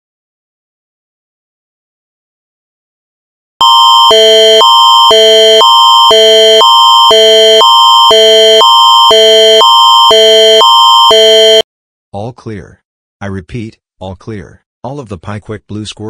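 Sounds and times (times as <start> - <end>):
two-chord alert tone: 3.6 - 11.6.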